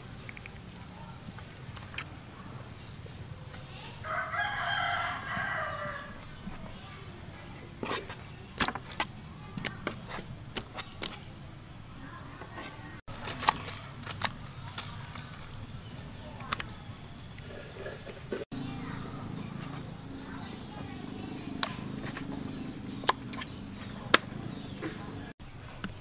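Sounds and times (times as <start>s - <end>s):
rooster crowing: 4.0s - 6.2s.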